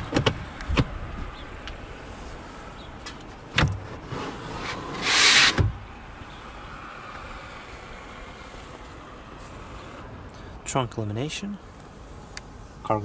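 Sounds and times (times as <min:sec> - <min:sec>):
cargo cover swish and thump: 0:03.5 - 0:05.8.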